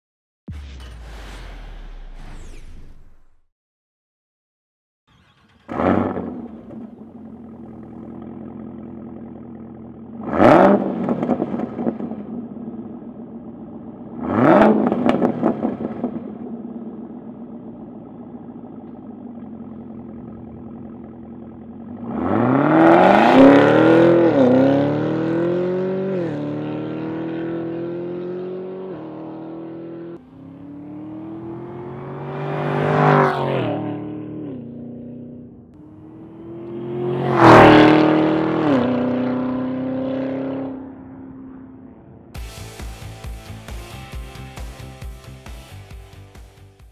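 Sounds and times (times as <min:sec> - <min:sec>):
car engine idling: 0:05.1 - 0:10.2, 0:16.3 - 0:22.1
car accelerating and shifting gears: 0:05.6 - 0:42.3.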